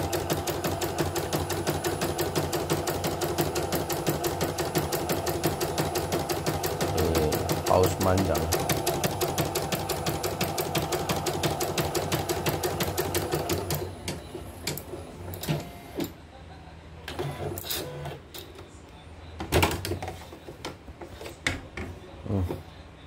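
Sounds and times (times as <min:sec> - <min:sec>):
embroidery machine stitching: 0:00.0 - 0:16.1.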